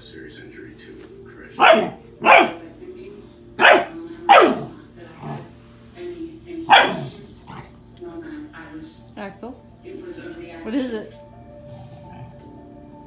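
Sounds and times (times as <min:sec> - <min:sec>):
puppy barking: 0:01.6 - 0:02.6, 0:03.6 - 0:05.4, 0:06.7 - 0:07.2.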